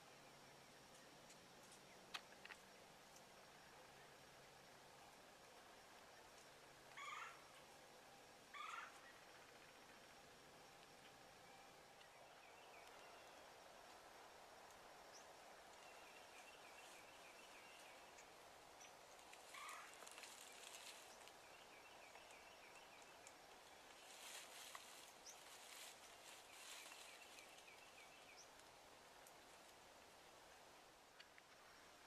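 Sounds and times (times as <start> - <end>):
rustling in dry brush: 19.1 - 21.4, 23.8 - 28.0.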